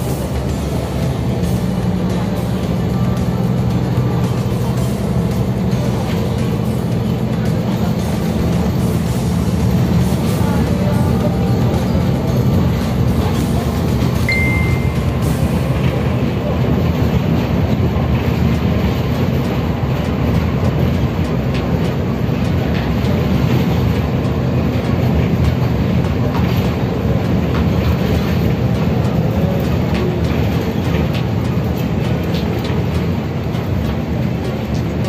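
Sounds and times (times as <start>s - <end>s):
road and engine rumble: 0.0s - 35.0s
high beep: 14.3s - 15.2s.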